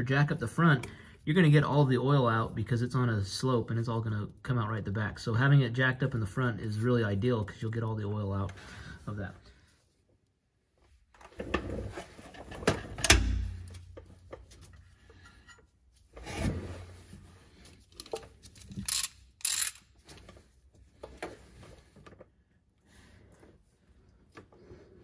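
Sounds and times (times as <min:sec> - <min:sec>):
wrench knocking and scraping: 0:18.0 - 0:19.9.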